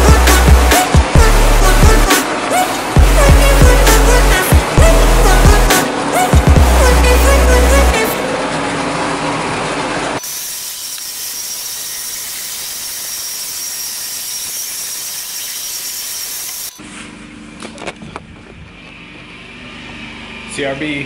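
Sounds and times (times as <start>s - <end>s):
background music: 0.0s - 8.4s.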